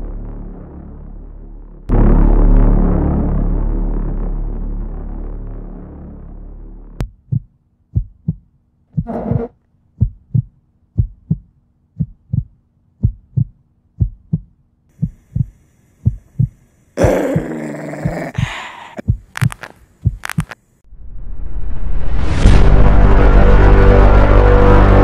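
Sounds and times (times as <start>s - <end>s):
heartbeat thumps: 7.0s - 20.6s.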